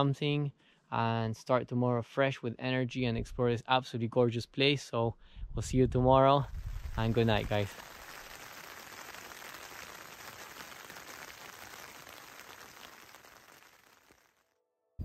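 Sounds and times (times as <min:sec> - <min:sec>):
light rain: 0:06.4 - 0:14.4.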